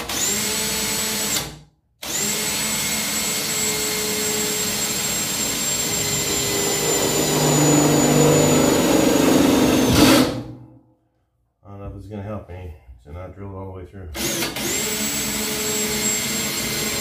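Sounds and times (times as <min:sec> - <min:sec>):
cordless drill drilling into metal: 0:00.0 - 0:10.5, 0:14.2 - 0:17.0.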